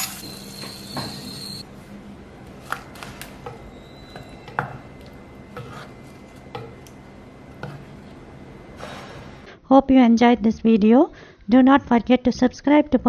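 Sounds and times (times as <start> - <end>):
wooden spoon tapping clay pot: 3.4 - 5.7.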